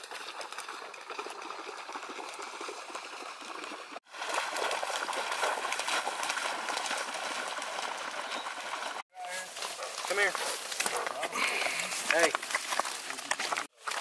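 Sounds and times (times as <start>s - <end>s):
shallow water sloshing and trickling: 0.0s - 10.1s.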